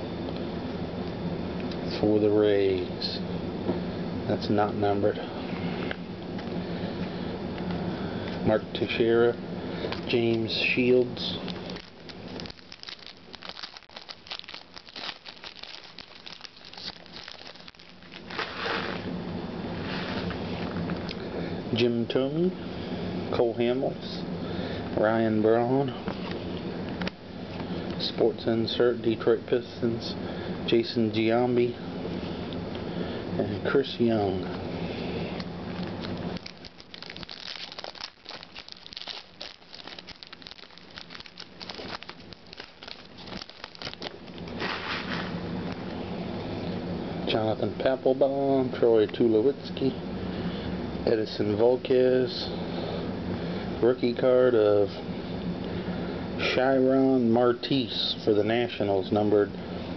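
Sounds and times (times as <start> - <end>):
plastic packaging crinkling: 9.9 - 19.1, 35.7 - 45.4
cards shuffled by hand: 11.5 - 19.1, 35.8 - 45.4.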